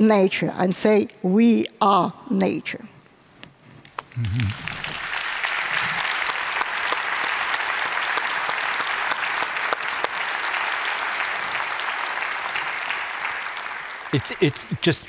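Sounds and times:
audience applauding: 0:04.2 - 0:15.0.

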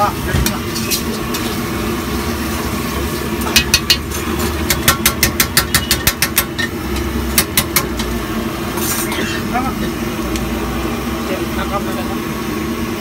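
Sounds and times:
metal spatula tapping iron wok: 0:03.5 - 0:06.7, 0:07.3 - 0:08.1.

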